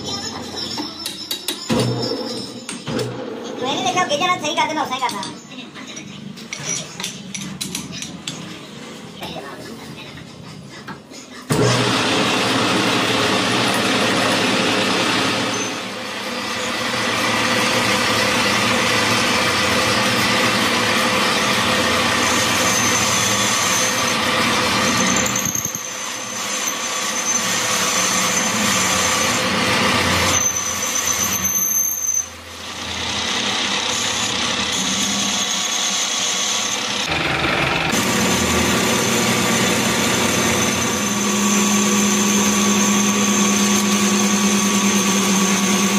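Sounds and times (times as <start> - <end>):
cutting tool squeal: 0.0 - 3.0, 15.4 - 15.9, 21.3 - 32.4, 33.9 - 37.0, 39.0 - 45.9
metal lathe cutting: 11.6 - 45.9.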